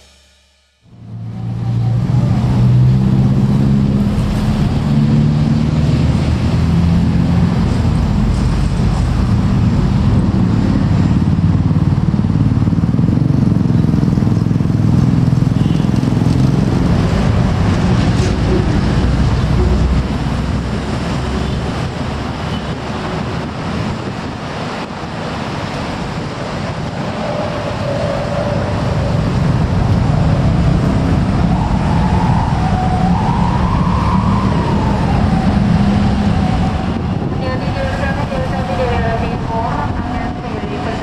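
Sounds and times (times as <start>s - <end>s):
car passing: 0.9s - 41.0s
motorcycles passing: 0.9s - 41.0s
wavering siren-like tone: 30.9s - 41.0s.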